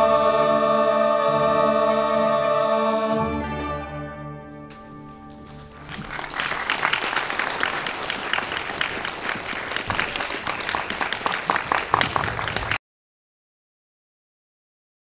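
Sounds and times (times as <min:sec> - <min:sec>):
audience applause: 0:05.3 - 0:12.8.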